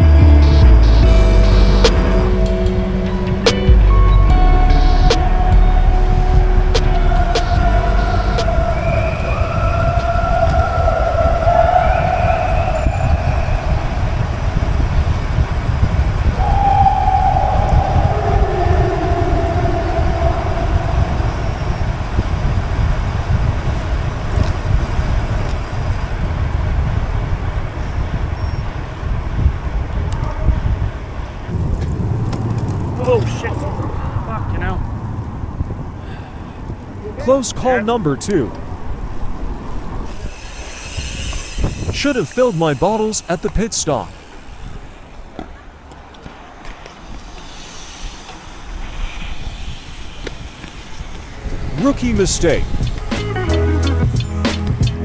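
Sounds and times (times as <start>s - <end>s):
long hooting tones: 0.0s - 15.1s, 16.0s - 23.2s
wind on microphone: 5.0s - 37.2s, 38.5s - 43.3s, 44.1s - 53.2s
bicycle tyre noise: 5.3s - 37.1s, 38.6s - 54.2s.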